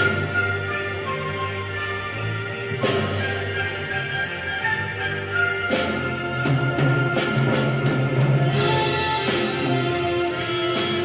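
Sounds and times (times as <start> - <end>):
bells shaking: 0.0 - 11.0
festive holiday tune with sleigh bells: 0.0 - 11.0.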